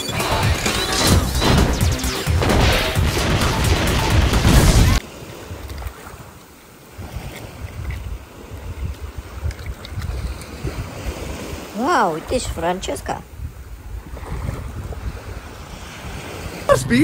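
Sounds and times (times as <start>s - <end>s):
action film music: 0.0s - 5.0s
crashes and explosions: 0.0s - 5.0s
wind on microphone: 7.0s - 11.7s, 13.3s - 17.0s.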